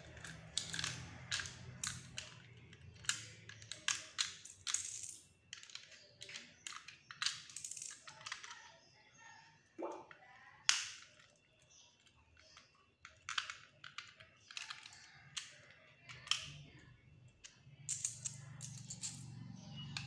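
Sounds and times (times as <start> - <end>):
small pieces set on tile floor: 0.0 - 9.2, 10.0 - 20.0
plastic bricks clicking together: 0.1 - 8.6, 12.0 - 19.2.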